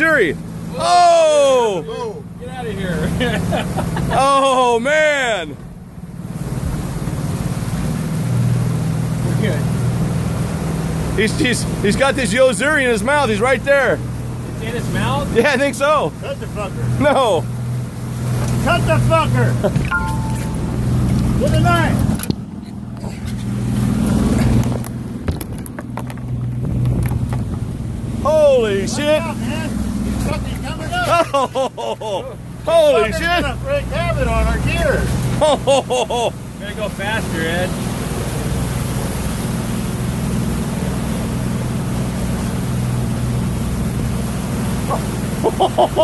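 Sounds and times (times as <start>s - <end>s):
churning water: 0.0s - 46.0s
outboard motor droning: 0.0s - 46.0s
sharp knocks and clicks: 24.6s - 27.6s.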